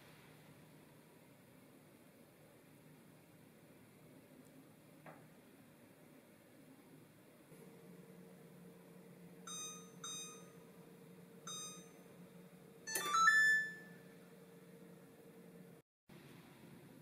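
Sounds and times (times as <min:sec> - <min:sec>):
faint steady hum: 0:00.0 - 0:17.0
oven keypad beeps: 0:09.5 - 0:10.6, 0:11.5 - 0:12.0, 0:12.9 - 0:14.0
multi-note chime: 0:12.9 - 0:14.0.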